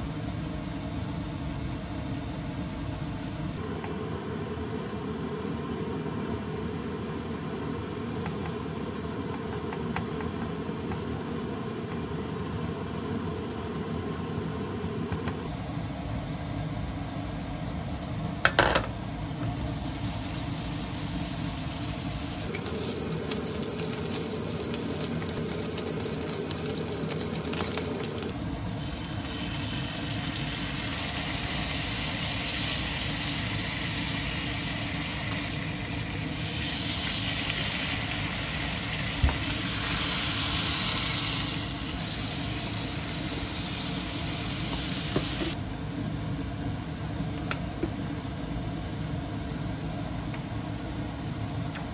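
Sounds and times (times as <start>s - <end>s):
background hum: 0.0s - 51.9s
oil sizzling: 19.4s - 45.6s.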